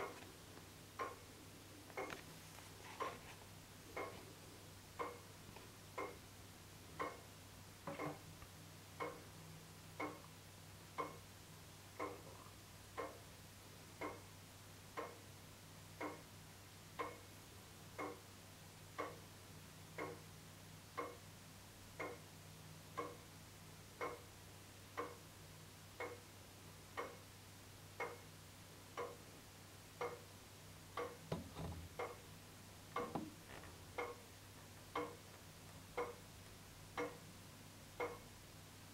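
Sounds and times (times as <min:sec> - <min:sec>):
clock ticking: 0:00.0 - 0:00.2, 0:00.9 - 0:01.3, 0:03.9 - 0:04.3, 0:04.9 - 0:06.3, 0:06.9 - 0:08.3, 0:08.9 - 0:19.3, 0:19.9 - 0:21.3, 0:21.9 - 0:27.3, 0:27.9 - 0:28.3, 0:28.9 - 0:38.4
soft knocks: 0:31.3 - 0:32.0, 0:33.0 - 0:33.8.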